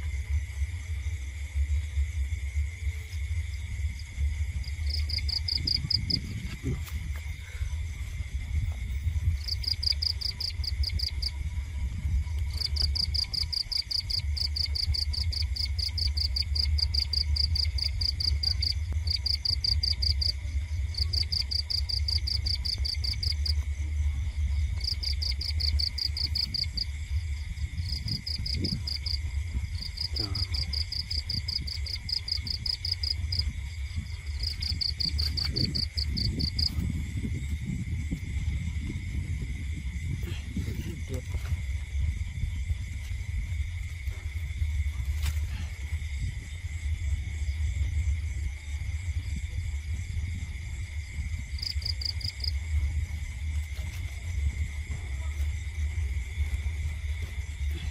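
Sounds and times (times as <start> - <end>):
high-pitched insect drone: 0.0 - 57.9
insects trilling in pulses: 0.0 - 57.9
low rumble: 0.0 - 57.9.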